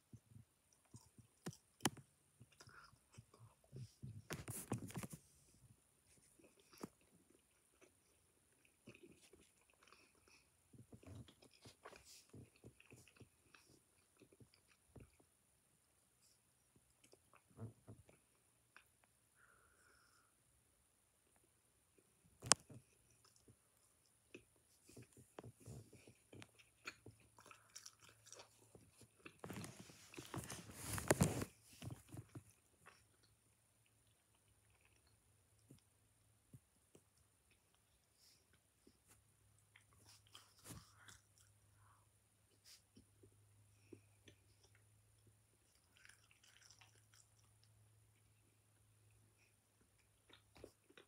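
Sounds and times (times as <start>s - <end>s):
person chewing: 6.3s - 15.3s, 21.9s - 35.9s, 42.6s - 48.7s, 49.3s - 51.0s.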